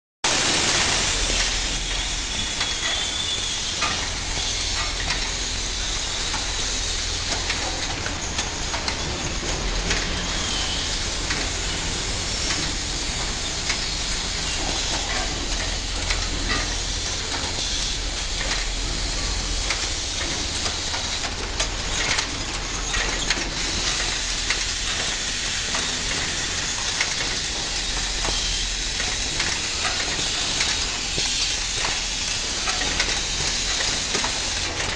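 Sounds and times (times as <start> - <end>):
machinery hiss: 0.3 - 34.9
clicks and clatter of moving parts: 19.6 - 34.9.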